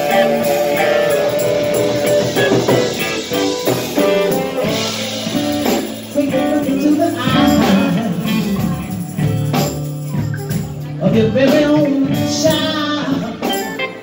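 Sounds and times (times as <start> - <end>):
saxophone melody: 0.0 - 8.7
drums: 0.0 - 14.0
live band music: 0.0 - 14.0.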